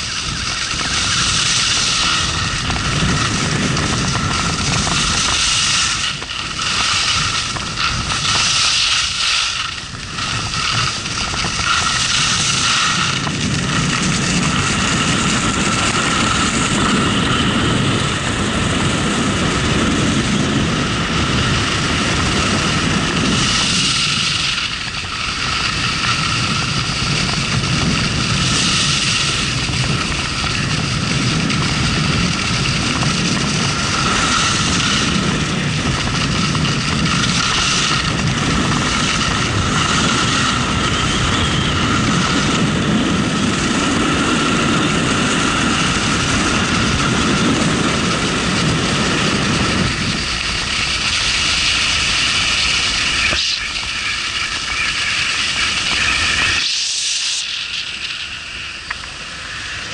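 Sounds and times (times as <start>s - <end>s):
skis hissing on snow: 0.0s - 19.0s, 21.2s - 59.9s
wind on microphone: 0.0s - 59.9s.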